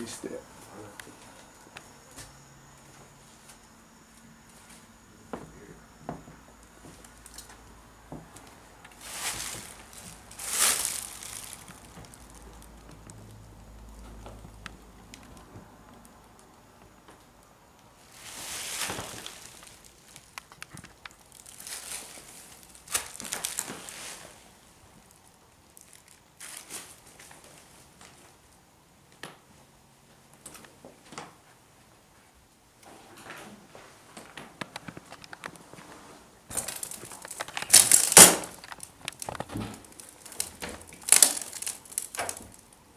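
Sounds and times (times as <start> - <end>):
faint footsteps and scuffs: 0.5 - 13.0
footsteps on gritty floor: 8.9 - 12.4, 18.1 - 24.4.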